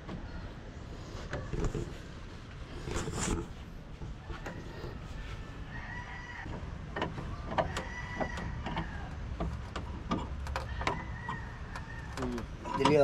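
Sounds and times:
rooster crowing: 4.2 - 6.6, 7.6 - 9.2, 10.7 - 12.3.

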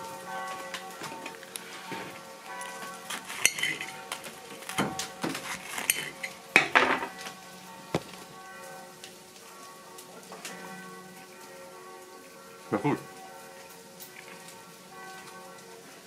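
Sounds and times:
fork clinking on porcelain plate: 3.4 - 3.9.

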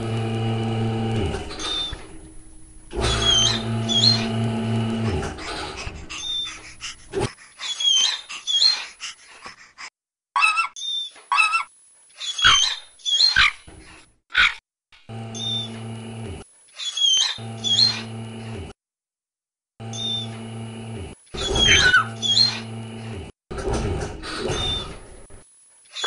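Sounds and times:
cartoon dog whimpers and yelps: 7.2 - 8.9, 10.4 - 13.6.

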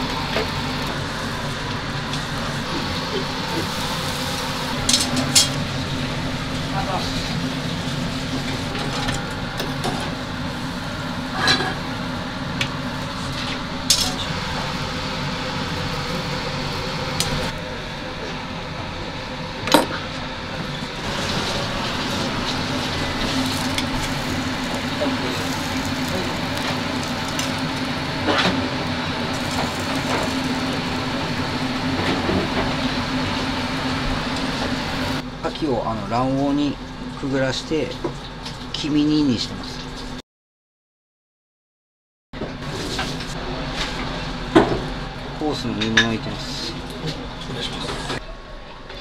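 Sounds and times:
vegetables sizzling in oil: 0.0 - 9.0, 20.9 - 35.2
steady hum: 0.0 - 40.1.

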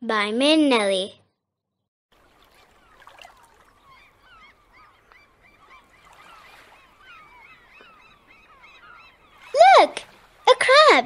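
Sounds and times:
gulls calling: 2.2 - 11.0.

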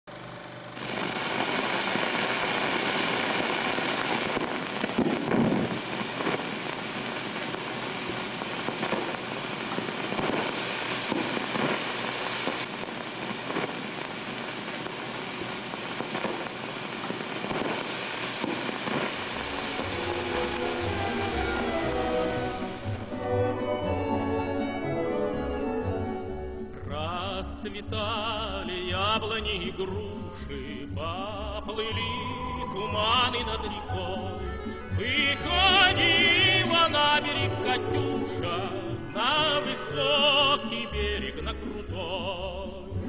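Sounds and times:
old film soundtrack hiss: 0.1 - 43.0
pops and clicks: 4.0 - 23.2.

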